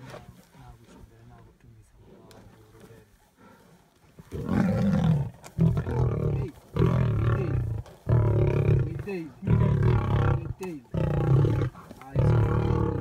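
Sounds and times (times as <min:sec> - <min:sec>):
lions growling and roaring: 0:04.2 - 0:13.0.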